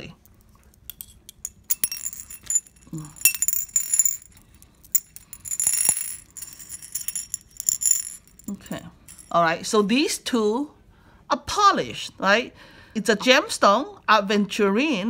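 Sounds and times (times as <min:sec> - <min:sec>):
beads clinking on porcelain saucer: 0:00.9 - 0:09.4.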